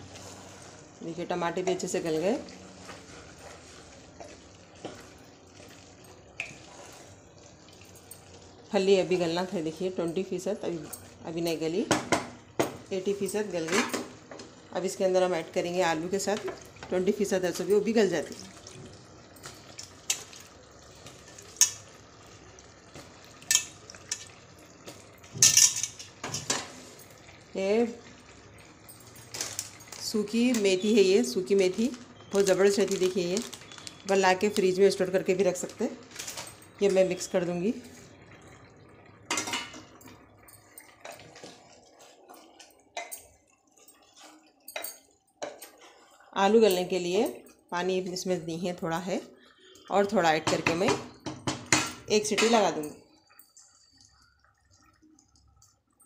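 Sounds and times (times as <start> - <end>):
wooden spoon scraping a pot: 2.7 - 5.2.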